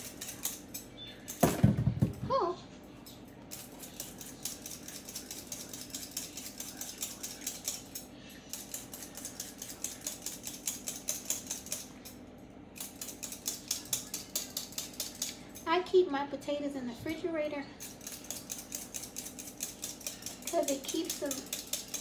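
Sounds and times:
peeler scraping potato skin: 0.0 - 1.4, 12.8 - 15.4, 17.8 - 22.0.

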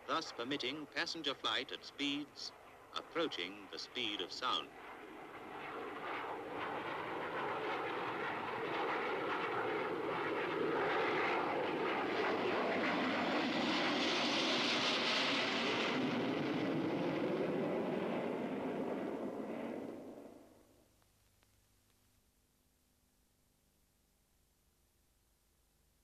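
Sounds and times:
jet airliner roaring past: 0.0 - 20.4.

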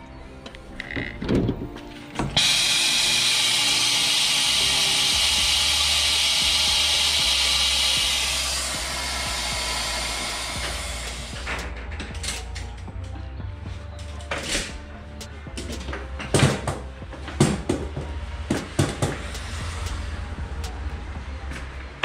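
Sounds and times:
loud steady hiss: 2.4 - 11.6
low hum: 2.4 - 16.3, 16.9 - 22.0.

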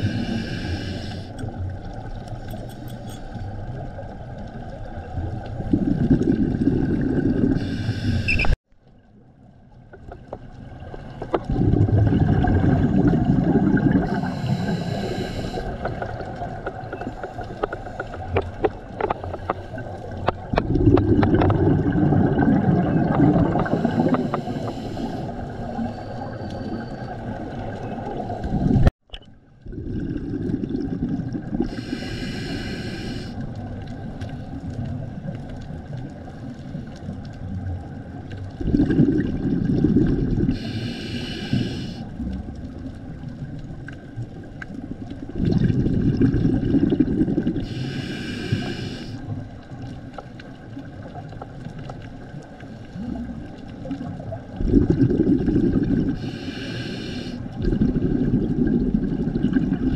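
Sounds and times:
regulator inhale hiss: 0.0 - 1.4, 7.6 - 8.6, 14.1 - 15.9, 23.6 - 27.2, 31.6 - 33.4, 40.5 - 42.1, 47.6 - 49.4, 56.2 - 57.6
exhaled bubbles rumbling underwater: 0.0 - 59.9.

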